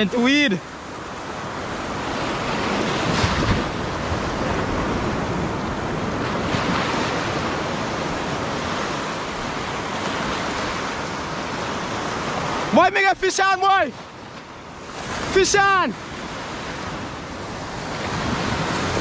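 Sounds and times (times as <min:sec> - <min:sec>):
surf washing over rocky reef: 0:00.0 - 0:19.0.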